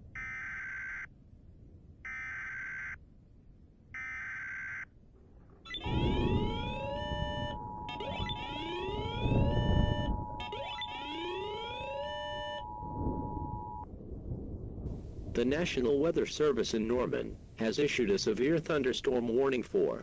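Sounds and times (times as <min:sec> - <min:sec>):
low rumble: 0:05.2 - 0:17.6
long steady alarm tone: 0:05.7 - 0:13.9
rising siren-like tones: 0:05.7 - 0:13.9.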